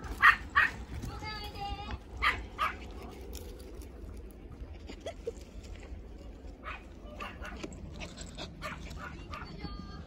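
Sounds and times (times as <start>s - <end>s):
small dogs yipping and barking: 0.0s - 1.0s, 2.2s - 3.0s, 6.6s - 9.8s
low steady rumble: 0.0s - 10.0s.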